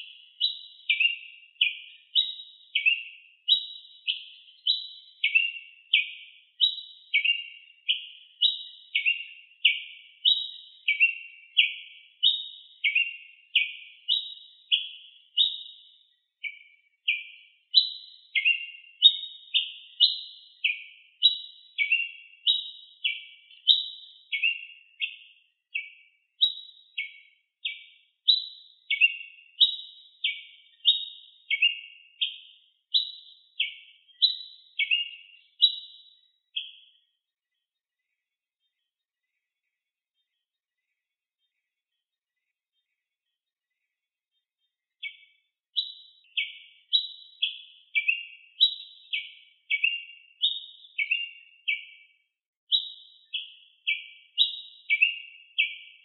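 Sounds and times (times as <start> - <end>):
bird whistling short sharp notes: 52.7 - 55.9.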